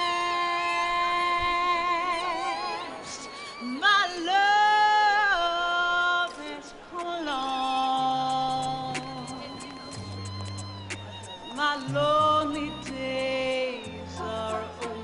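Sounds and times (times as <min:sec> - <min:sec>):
person singing a cappella: 0:00.0 - 0:10.4, 0:11.3 - 0:15.0.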